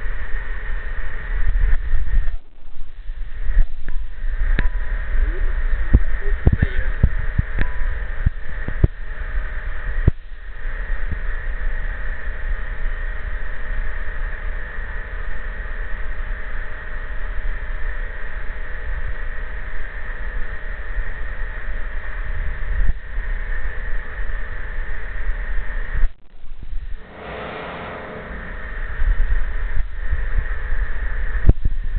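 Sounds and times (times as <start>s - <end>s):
conveyor running: 27.0s - 29.7s.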